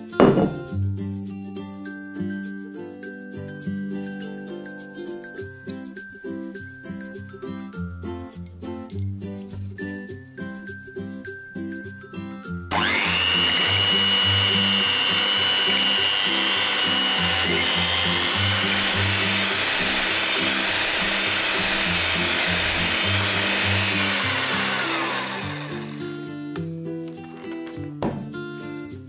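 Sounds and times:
electric hand mixer whining: 12.7 - 26.2.

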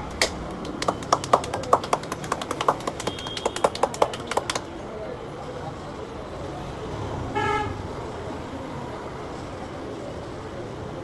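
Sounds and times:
hands slapping scalp: 0.1 - 4.6.

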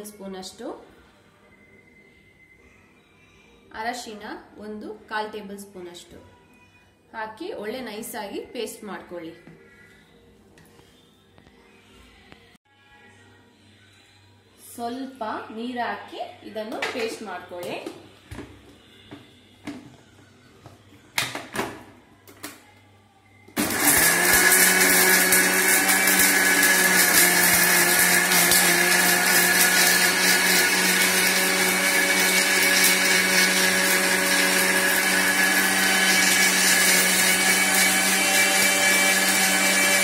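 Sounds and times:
electric mixer grinder running: 23.6 - 40.0.

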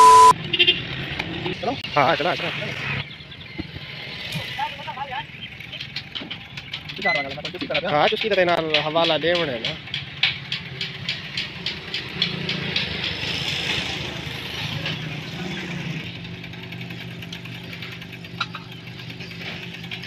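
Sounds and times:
diesel engine knocking: 5.2 - 20.0.

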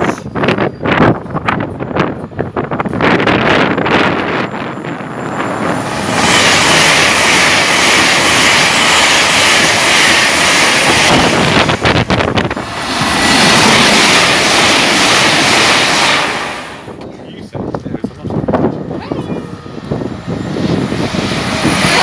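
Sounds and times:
train passing at speed: 0.0 - 22.0.

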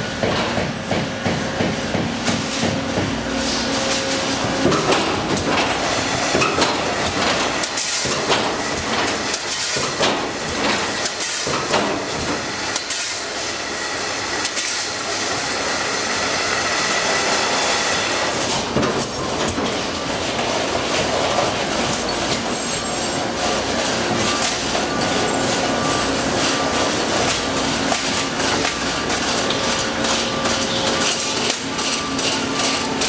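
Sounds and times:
machinery metallic clatter: 0.1 - 13.2, 18.3 - 33.0.

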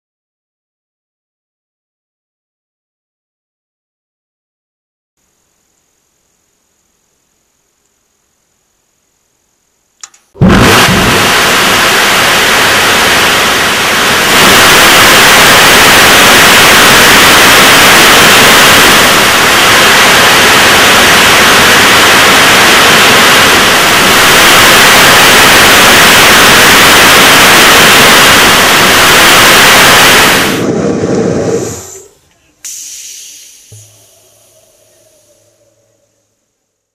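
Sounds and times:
rocket engine roaring: 10.4 - 36.3.

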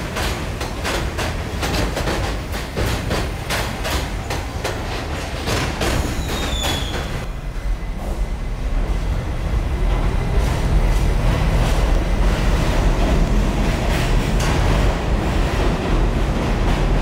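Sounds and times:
train wheels clicking over rail joints: 0.0 - 7.3, 9.9 - 17.0
low rumble of train: 0.0 - 17.0
high wheel squeal: 6.0 - 7.2.

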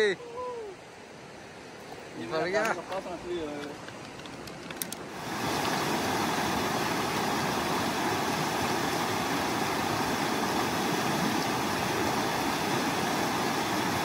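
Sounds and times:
stream rushing over rocks: 4.9 - 14.0.

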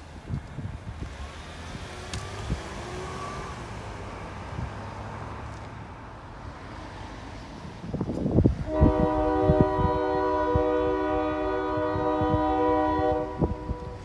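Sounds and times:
road traffic rumble: 0.0 - 14.0
locomotive air horn blast: 8.6 - 14.0.

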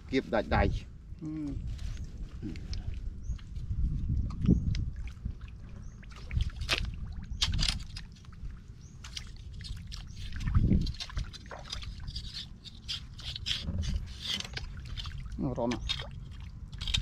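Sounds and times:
mud and water sloshing: 1.7 - 17.0.

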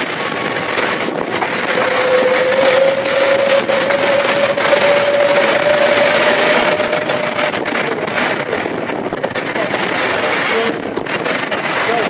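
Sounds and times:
steady high whine: 0.0 - 9.2
train wheels clattering: 0.0 - 12.0.

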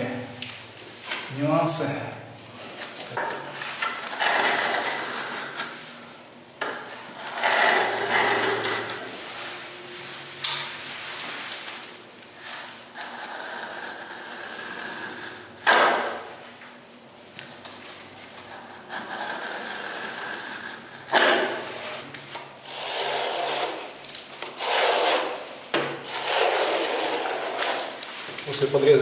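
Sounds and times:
spatula scraping plaster: 2.6 - 9.5, 12.4 - 16.3, 18.4 - 28.6.

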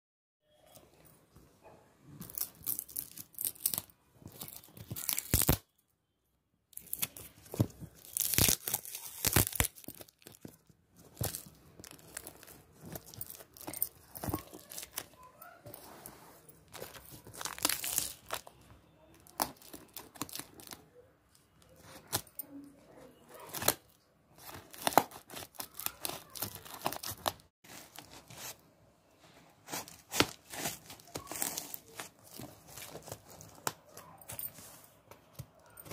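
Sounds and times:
tape and cardboard ripping: 4.5 - 5.6, 8.0 - 10.4.

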